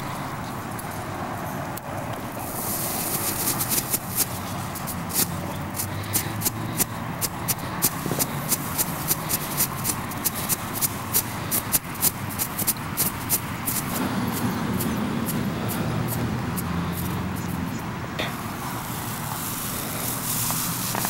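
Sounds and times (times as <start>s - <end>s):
fireworks hissing: 2.4s - 17.6s, 18.2s - 21.0s
fireworks crackling pops: 2.5s - 17.1s, 18.2s - 21.0s.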